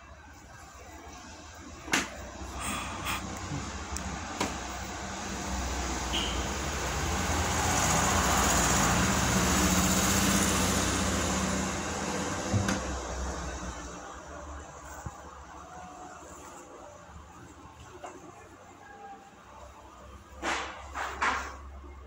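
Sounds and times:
vehicle passing by: 0:02.6 - 0:14.9.

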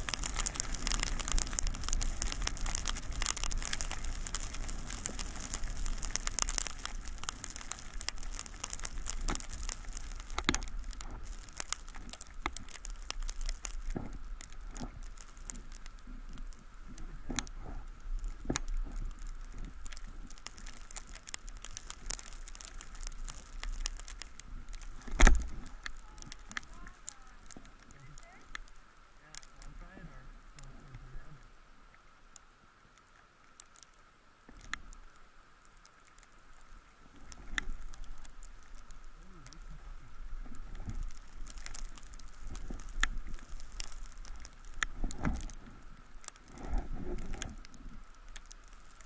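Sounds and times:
skis scraping over snow: 0:00.0 - 0:23.6.

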